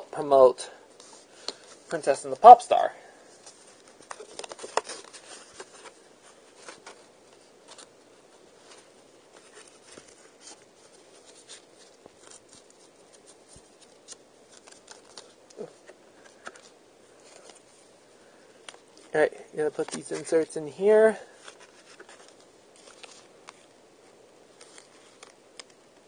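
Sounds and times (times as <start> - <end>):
plastic cd case handled: 3.4 - 8.0, 8.6 - 17.7, 19.8 - 20.4, 21.4 - 23.7, 24.5 - 26.0.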